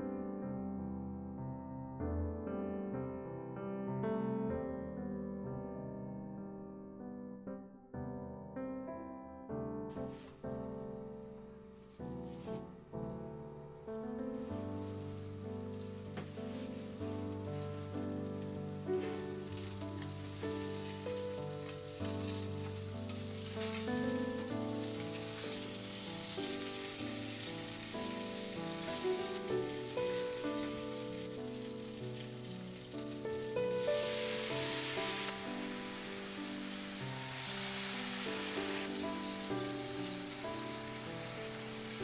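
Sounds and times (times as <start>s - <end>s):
fish sizzling in oil: 9.9s - 10.6s, 11.8s - 13.2s, 14.1s - 42.0s
background music: 9.9s - 42.0s.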